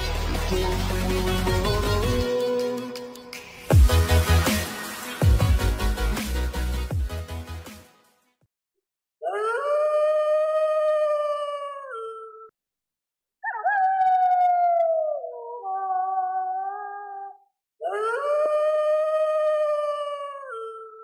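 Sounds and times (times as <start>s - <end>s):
wolf howling: 13.4s - 20.8s.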